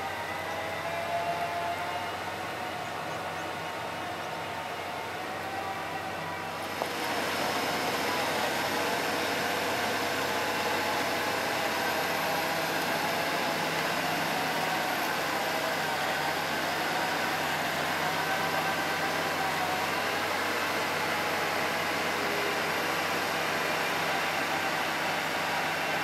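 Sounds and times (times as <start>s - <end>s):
bulldozer diesel engine running: 2.2s - 26.0s.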